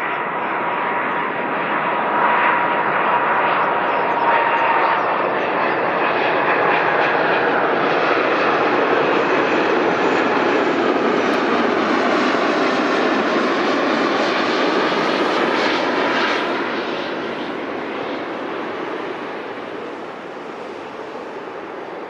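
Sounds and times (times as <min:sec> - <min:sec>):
jet airliner engines roaring: 0:00.0 - 0:22.0.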